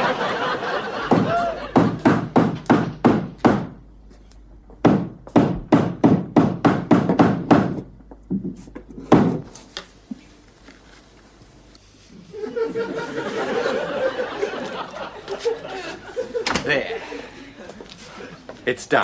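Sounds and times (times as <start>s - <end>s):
hammer driving nails into wood: 1.8s - 3.8s, 4.8s - 7.8s.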